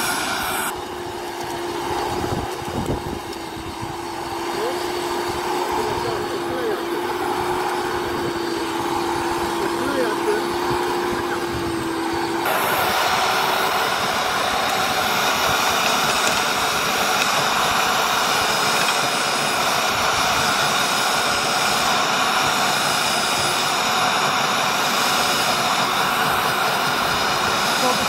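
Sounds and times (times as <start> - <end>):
electric motor whine: 0.0 - 28.0
tines churning soil: 0.0 - 28.0.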